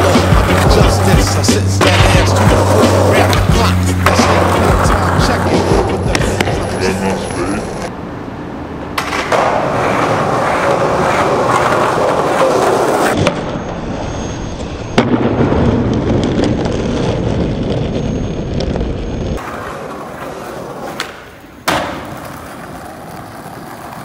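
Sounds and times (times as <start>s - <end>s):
skateboard wheels rolling on concrete: 0.0s - 24.0s
skateboard landing clack: 9.0s - 10.0s, 20.8s - 23.9s.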